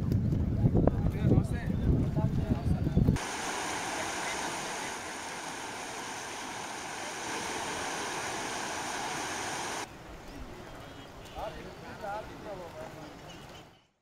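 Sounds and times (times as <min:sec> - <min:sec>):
steady rushing noise: 0:03.2 - 0:09.9.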